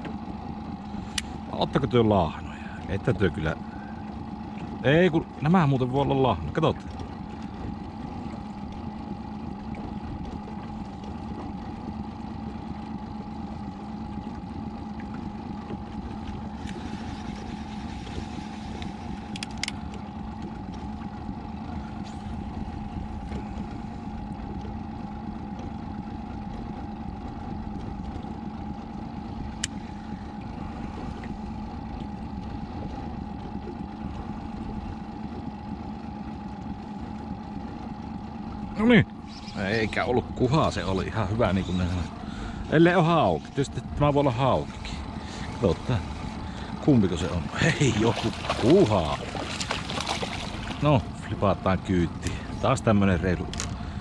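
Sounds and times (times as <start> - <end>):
boat motor humming and whining: 0.0 - 54.0.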